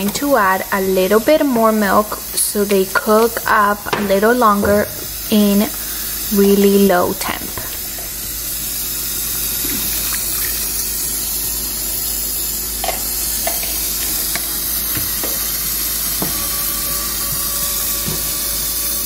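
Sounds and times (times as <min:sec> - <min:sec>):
steady hiss: 0:00.0 - 0:19.0
milk pouring into a pot: 0:07.4 - 0:16.2.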